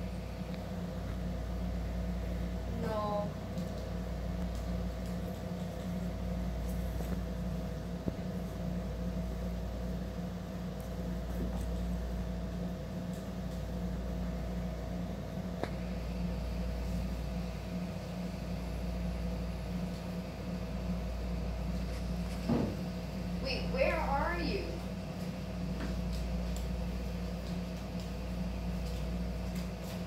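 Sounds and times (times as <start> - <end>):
fan humming: 0.0 - 30.0.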